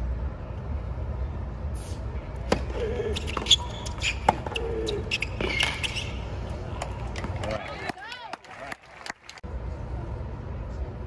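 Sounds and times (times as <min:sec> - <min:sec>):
tennis ball struck by racquets: 0:02.4 - 0:06.2.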